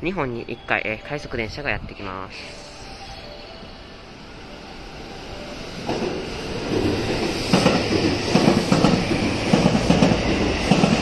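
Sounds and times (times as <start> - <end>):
train rumbling past: 1.8 - 11.0
train wheels clacking: 5.8 - 11.0.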